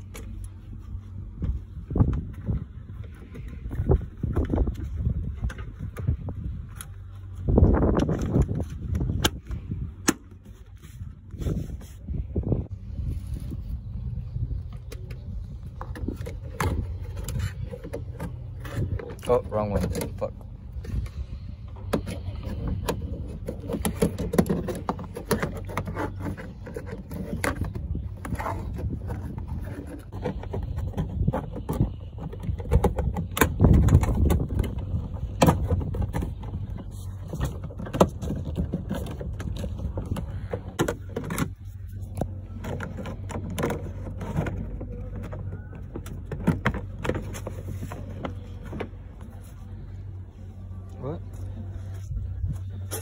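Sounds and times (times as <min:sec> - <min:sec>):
phone rubbing against clothing: 0:10.4 - 0:19.0.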